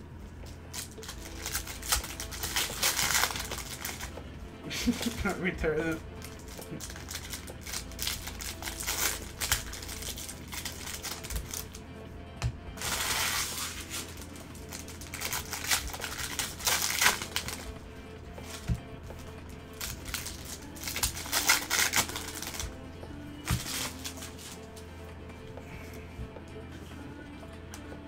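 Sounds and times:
background music: 0:00.0 - 0:28.0
cards clicking and snapping: 0:00.5 - 0:04.2, 0:06.2 - 0:11.8, 0:12.4 - 0:17.7, 0:19.8 - 0:22.7, 0:23.4 - 0:24.6
wrapper crinkling: 0:00.7 - 0:04.2, 0:06.2 - 0:11.8, 0:12.8 - 0:17.8, 0:19.7 - 0:22.8, 0:23.5 - 0:24.7.

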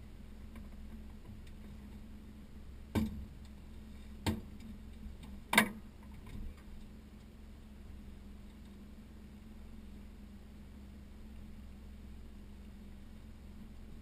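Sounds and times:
steady low hum: 0:00.0 - 0:14.0
knocks in metal boat: 0:02.9 - 0:03.3.

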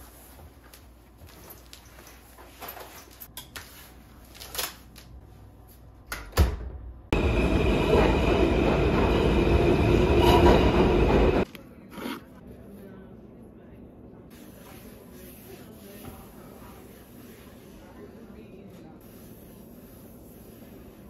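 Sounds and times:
subway train rumbling past: 0:07.1 - 0:11.5.

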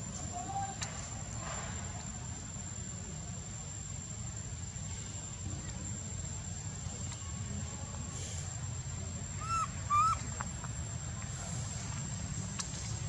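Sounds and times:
monkey calls: 0:09.4 - 0:10.2.

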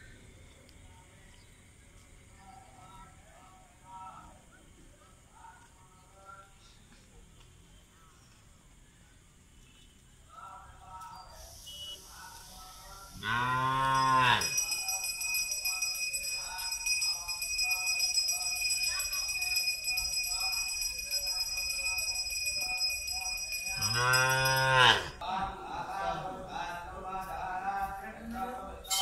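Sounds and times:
faint distant voices: 0:00.0 - 0:29.0
cow mooing: 0:13.2 - 0:14.5, 0:23.8 - 0:25.2
high bell-like ringing tone: 0:13.3 - 0:25.0.

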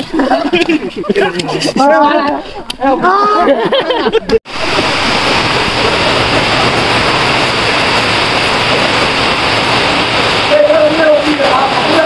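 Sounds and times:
heavy rain pouring: 0:04.5 - 0:12.0.

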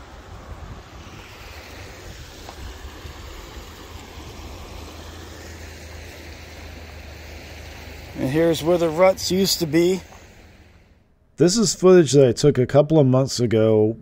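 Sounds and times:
wind rumbling on microphone: 0:00.0 - 0:10.9
flowing water rushing: 0:00.0 - 0:11.0.

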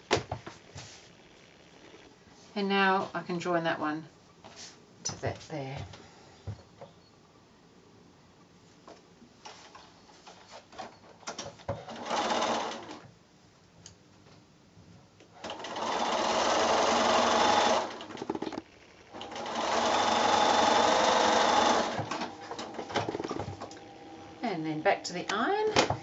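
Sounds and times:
sewing machine stitching: 0:11.8 - 0:13.0, 0:15.4 - 0:23.9.

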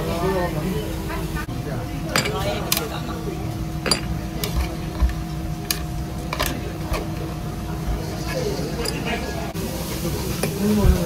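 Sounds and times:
steady low hum: 0:00.0 - 0:11.0
ice clinking against metal: 0:03.8 - 0:05.2, 0:08.2 - 0:09.2.

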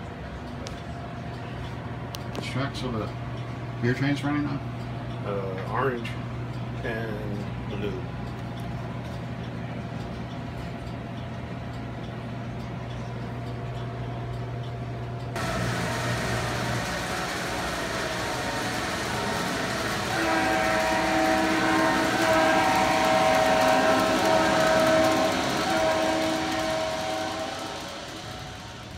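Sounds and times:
steady low hum: 0:00.0 - 0:28.9
model train running noise: 0:01.4 - 0:28.9
multi-note diesel horn: 0:17.7 - 0:28.2.

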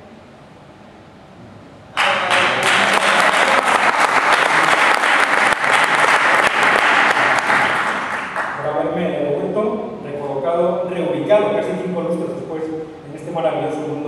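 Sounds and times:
audience clapping: 0:01.9 - 0:08.8.

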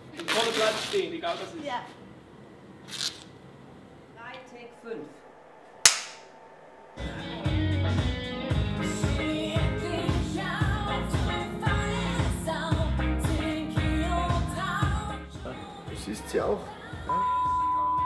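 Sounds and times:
pop-rock song with singing: 0:07.0 - 0:18.0.

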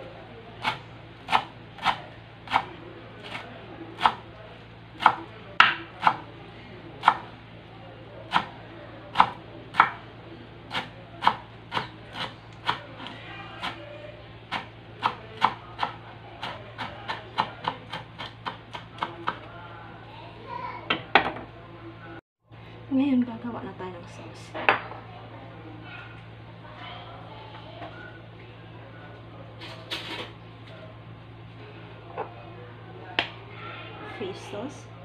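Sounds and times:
knife chopping on wooden board: 0:00.6 - 0:02.7, 0:04.0 - 0:04.2, 0:07.0 - 0:07.3, 0:08.3 - 0:08.5, 0:09.2 - 0:10.0, 0:10.7 - 0:13.8, 0:14.5 - 0:19.4.

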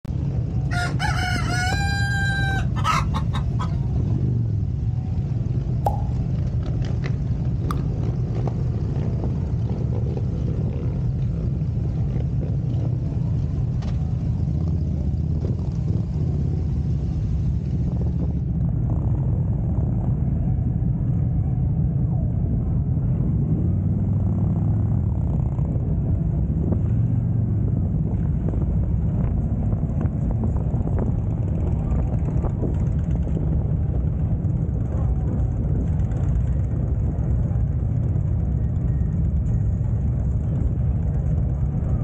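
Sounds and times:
rooster crowing: 0:00.7 - 0:03.9
motorcycle engine rumbling: 0:31.1 - 0:42.0.

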